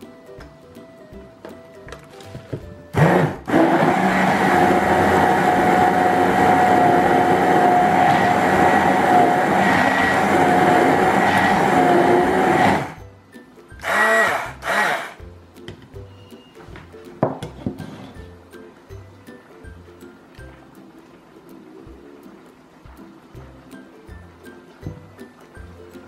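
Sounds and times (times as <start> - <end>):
stick blender whirring: 2.9 - 13.0, 13.8 - 15.2.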